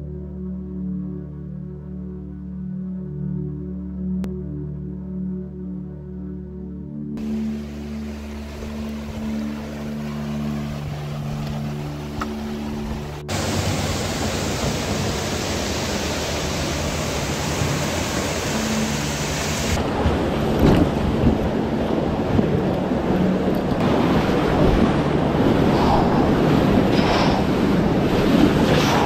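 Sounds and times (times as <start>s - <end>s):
ambient music low tones: 0.0s - 29.0s
whitewater river rushing: 7.2s - 29.0s.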